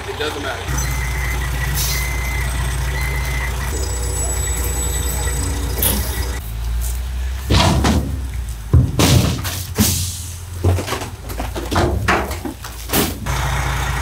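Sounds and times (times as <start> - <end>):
diesel truck engine running: 0.0 - 14.0
reversing beeper: 0.7 - 6.4.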